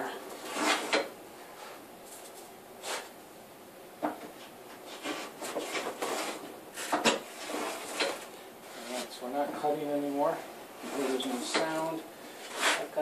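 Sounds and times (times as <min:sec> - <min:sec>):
hand plane scraping wood: 0:00.3 - 0:01.1, 0:04.8 - 0:09.2, 0:10.8 - 0:13.0.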